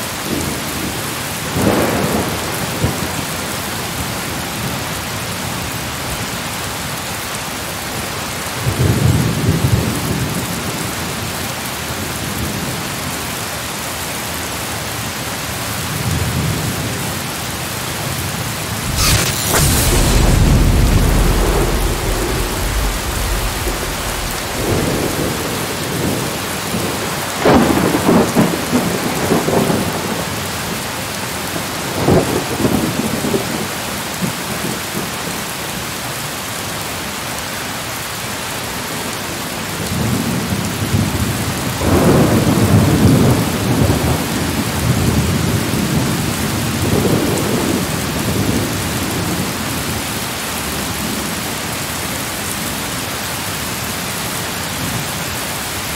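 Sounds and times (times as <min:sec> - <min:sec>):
rain hiss: 0:00.0 - 0:55.9
rolling thunder: 0:18.7 - 0:30.2.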